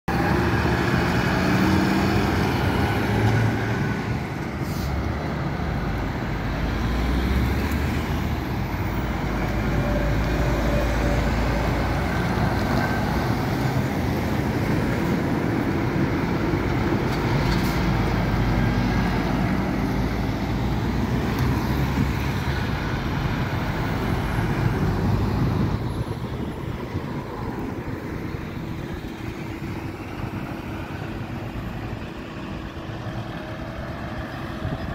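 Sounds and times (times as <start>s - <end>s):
trucks and cars passing: 0.1s - 34.9s.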